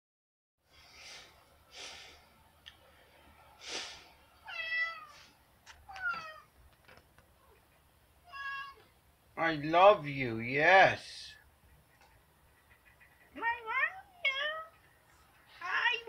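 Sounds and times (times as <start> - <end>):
cat meowing: 4.4 - 5.2, 5.8 - 6.5, 8.2 - 8.9.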